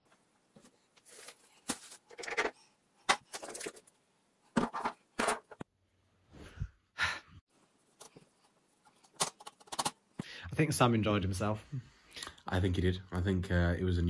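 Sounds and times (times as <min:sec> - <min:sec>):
kitchen items knocking and clattering: 0:01.6 - 0:03.9, 0:04.5 - 0:05.7.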